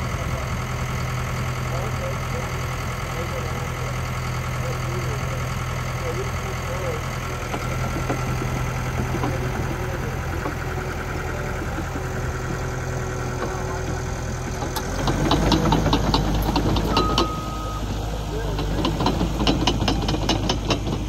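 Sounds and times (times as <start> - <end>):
diesel engine running: 0.0 - 21.0
steel tracks clanking: 14.6 - 21.0.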